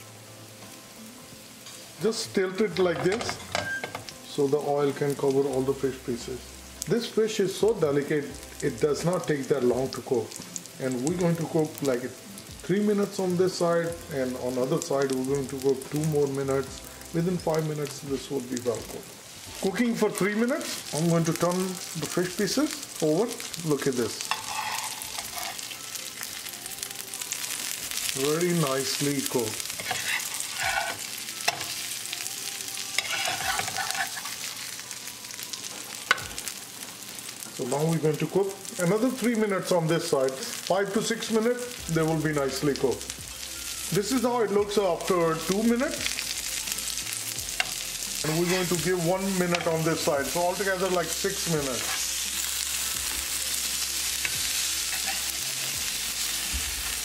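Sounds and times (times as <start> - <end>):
fish sizzling in hot oil: 0.0 - 57.0
metal turner scraping pan: 24.1 - 25.8, 29.7 - 31.8, 33.0 - 34.4, 51.6 - 52.2, 54.2 - 55.9.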